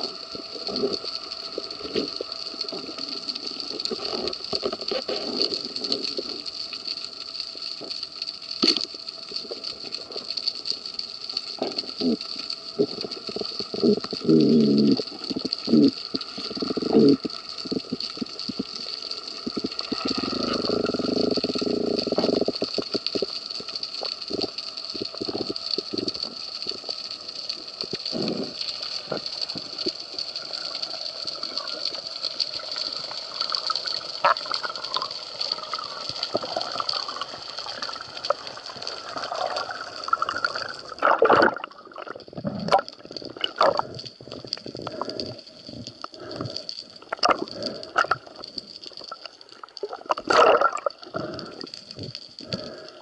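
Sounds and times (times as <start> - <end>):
water rushing underwater: 11.4 - 53.0.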